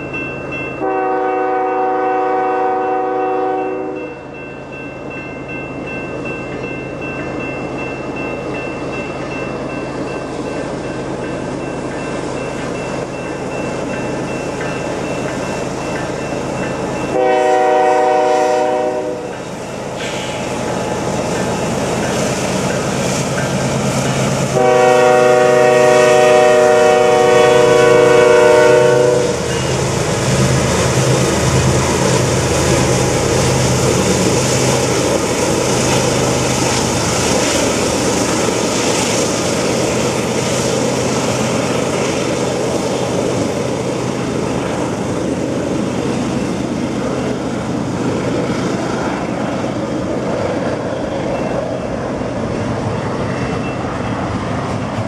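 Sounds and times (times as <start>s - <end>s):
train horn blasts: 0.8s - 4.2s, 17.1s - 19.4s, 24.5s - 29.7s
locomotive engine drone: 3.9s - 55.0s.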